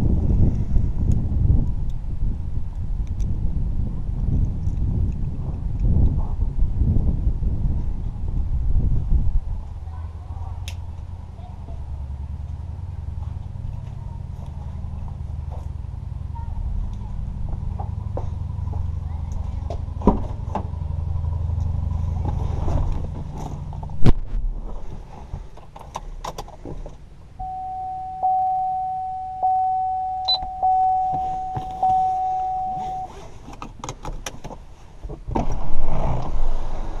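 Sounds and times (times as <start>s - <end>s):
car engine starting and running: 25.7s - 37.0s
dashboard chime dinging: 27.4s - 33.2s.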